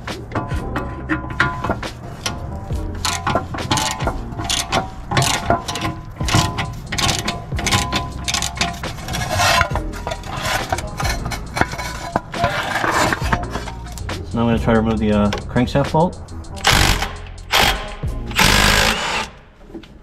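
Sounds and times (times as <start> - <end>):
background music: 0.0 - 20.0
hand ratchet clicking: 3.0 - 19.4.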